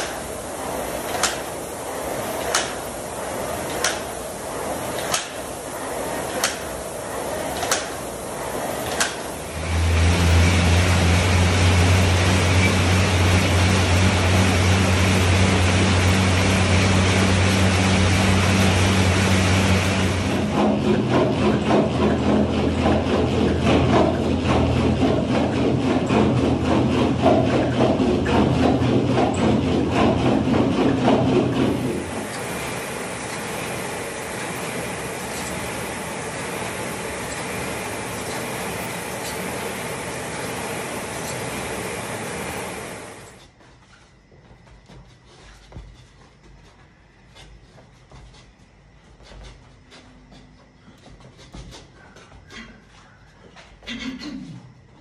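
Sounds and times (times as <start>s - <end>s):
fan flywheel whoosh: 0.0s - 43.6s
treadmill rolling rumble: 0.0s - 54.1s
footfalls on treadmill belt: 20.4s - 54.0s.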